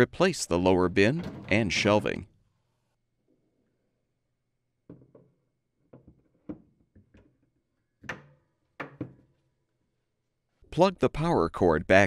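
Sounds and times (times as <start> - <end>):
wire shelves knocking and clicking: 1.1 - 2.2, 4.8 - 9.5.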